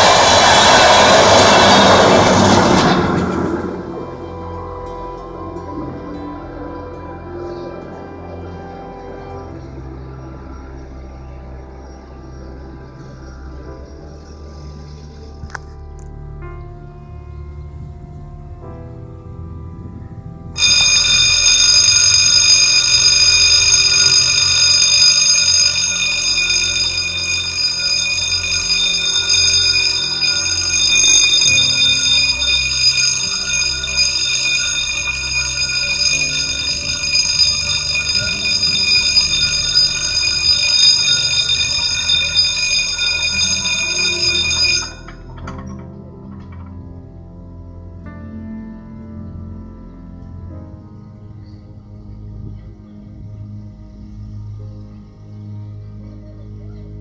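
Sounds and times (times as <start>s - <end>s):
level crossing warning bell: 0.0s - 3.6s, 20.6s - 45.8s.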